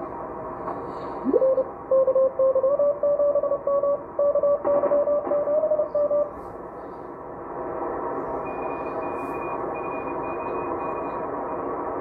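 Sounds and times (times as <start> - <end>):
faint higher-pitched morse signal: 1.3 - 6.3
morse code tone: 1.3 - 6.3.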